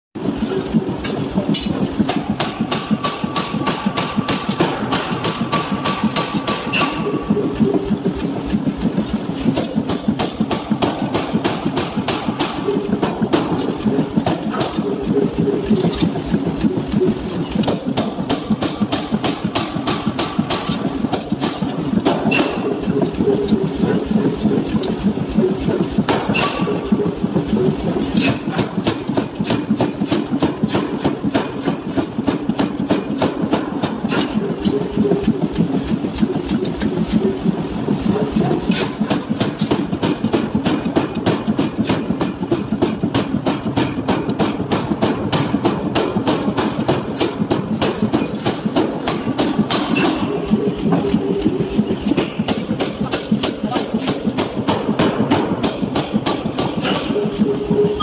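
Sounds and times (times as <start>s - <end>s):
hammer machinery running: 0.2s - 58.0s
forging hammer blows on steel: 1.0s - 7.4s.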